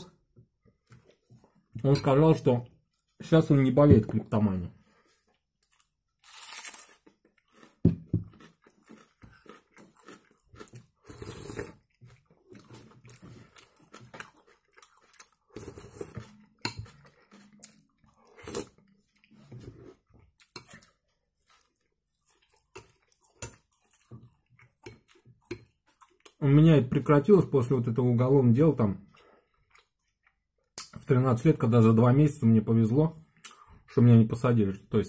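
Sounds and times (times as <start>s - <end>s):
wet chewing: 5.2s - 26.4s
spoon eating thick soup: 7.0s - 26.4s.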